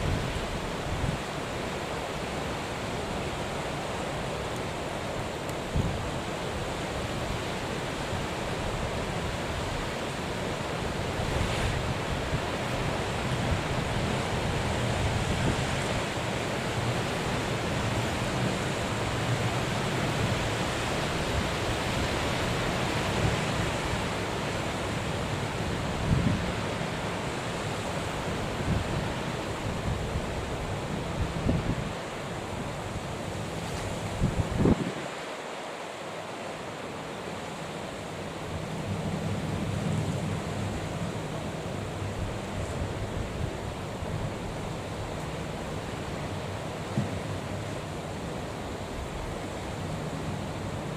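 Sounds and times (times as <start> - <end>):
rough sea and breaking waves: 0.0 - 50.9
wind buffeting microphone: 33.9 - 35.2.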